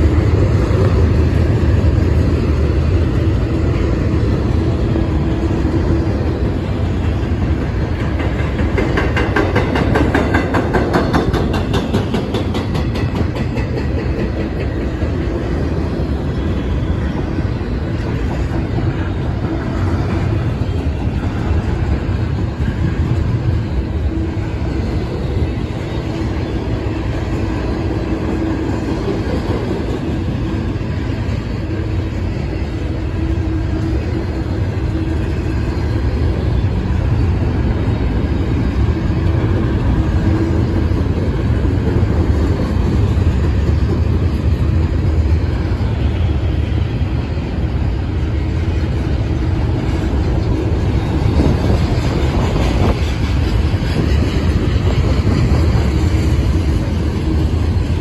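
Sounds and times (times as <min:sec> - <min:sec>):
freight train rolling past: 0:00.0 - 0:58.0
steel wheels rumbling on rail: 0:00.0 - 0:58.0.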